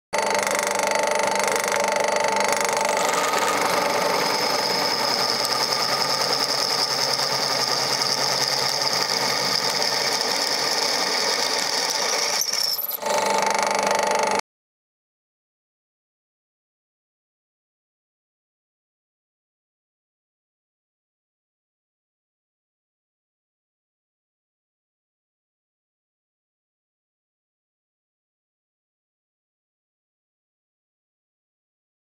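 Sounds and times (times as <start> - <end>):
drill bit whine cutting steel: 0.2 - 14.4
drill press motor hum: 0.2 - 14.4.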